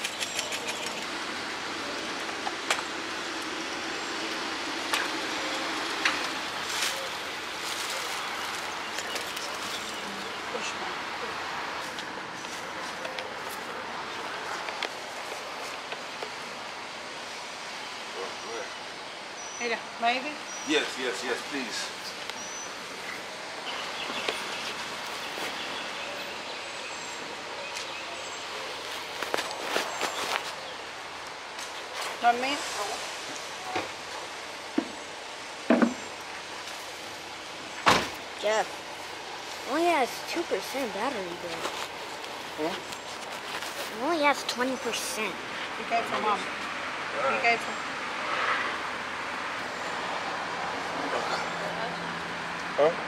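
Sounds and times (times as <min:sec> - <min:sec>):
sharp clicks: 0:00.0 - 0:01.1
faint low engine hum: 0:00.0 - 0:53.0
outdoor traffic noise: 0:00.0 - 0:53.0.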